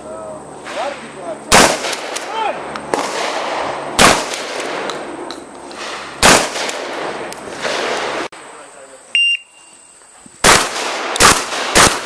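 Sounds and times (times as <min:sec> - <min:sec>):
shotgun shots with echo: 0:01.5 - 0:05.0, 0:05.8 - 0:08.3, 0:10.4 - 0:12.0.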